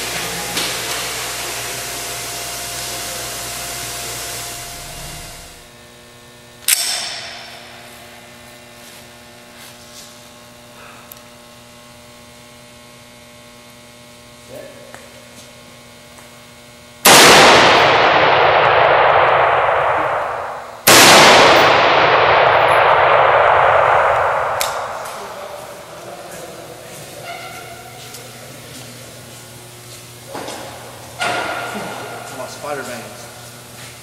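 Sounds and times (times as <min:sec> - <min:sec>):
rifle shots: 0:17.0 - 0:25.9.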